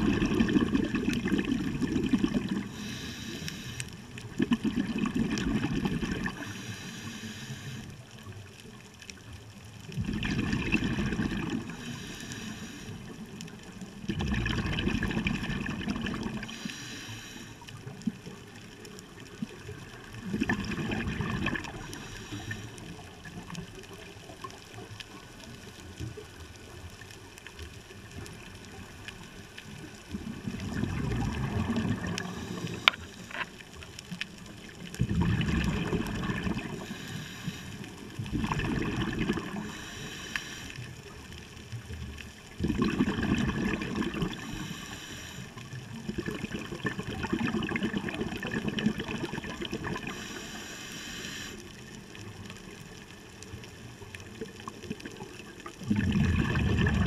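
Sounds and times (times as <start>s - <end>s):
regulator exhaust bubbling underwater: 0.0s - 3.0s, 4.2s - 6.4s, 10.0s - 11.8s, 14.0s - 16.6s, 20.1s - 23.3s, 30.1s - 33.4s, 35.0s - 36.9s, 38.2s - 39.8s, 42.5s - 44.8s, 45.6s - 50.4s, 54.4s - 57.0s
steady hiss: 2.6s - 4.3s, 6.4s - 8.3s, 11.6s - 13.6s, 16.4s - 18.0s, 21.7s - 23.2s, 32.1s - 34.8s, 36.6s - 38.2s, 39.5s - 41.4s, 44.3s - 45.8s, 50.0s - 52.5s.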